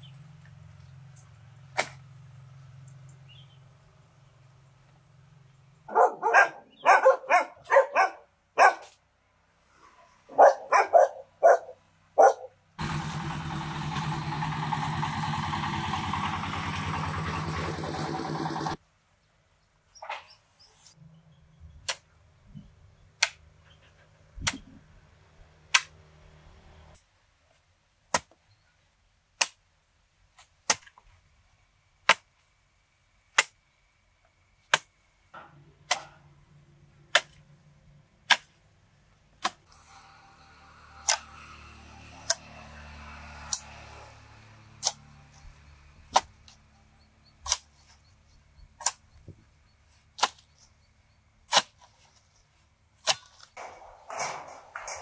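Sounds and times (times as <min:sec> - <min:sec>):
sharp knocks: 0:53.6 - 0:55.0.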